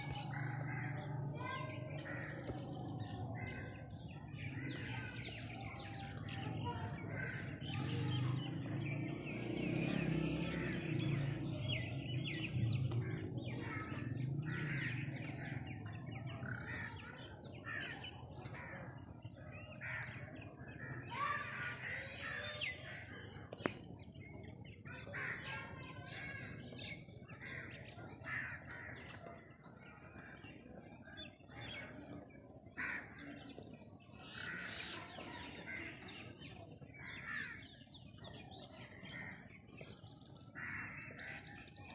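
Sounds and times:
birds chirping: 0:00.0 - 0:41.9
crows cawing: 0:14.5 - 0:15.6, 0:32.8 - 0:33.2, 0:40.6 - 0:41.3.

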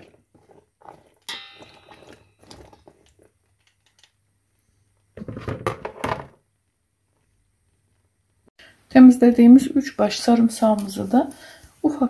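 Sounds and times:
clattering and handling: 0:00.0 - 0:04.3, 0:04.9 - 0:08.1
metal spoon clinking on pot: 0:01.2 - 0:03.1.

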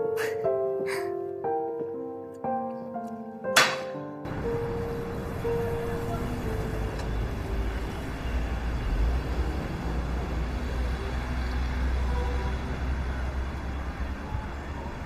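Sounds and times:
soft musical notes: 0:00.0 - 0:08.3
street noise: 0:03.6 - 0:15.0.

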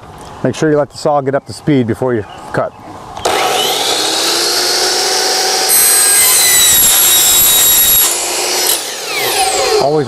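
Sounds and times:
miter saw motor whine: 0:03.2 - 0:10.0
saw blade screeching on metal: 0:05.3 - 0:10.0.

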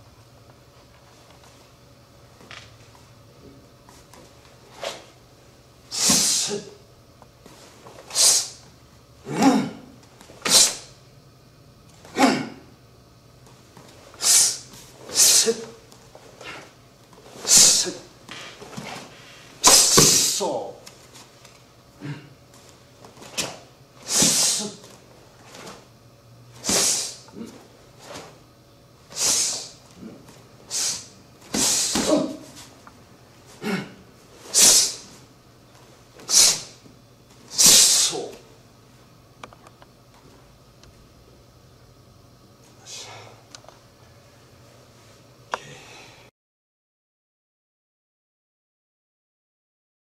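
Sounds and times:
forceful hissing exhalations: 0:05.9 - 0:06.7, 0:08.0 - 0:08.6, 0:10.4 - 0:10.9, 0:14.2 - 0:15.6, 0:17.4 - 0:18.0, 0:24.0 - 0:24.8, 0:26.6 - 0:27.3, 0:29.1 - 0:29.8, 0:30.7 - 0:32.3, 0:34.4 - 0:35.1, 0:36.2 - 0:36.8, 0:37.5 - 0:38.3
person's short forceful breaths: 0:29.1 - 0:32.7, 0:45.6 - 0:46.3.

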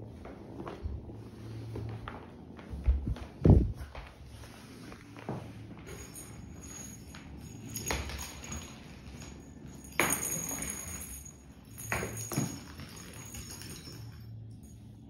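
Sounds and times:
kitten footfalls on tiled floor: 0:00.2 - 0:05.8.

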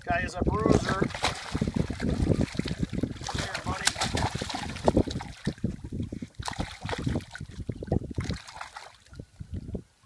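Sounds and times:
fish splashing at surface: 0:00.7 - 0:05.7, 0:06.4 - 0:09.1.

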